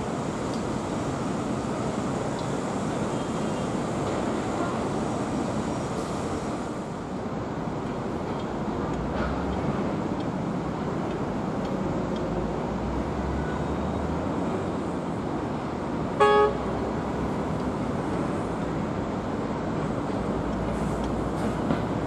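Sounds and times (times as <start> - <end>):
distant traffic rush: 0.0 - 22.0
short horn toot: 16.2 - 16.6.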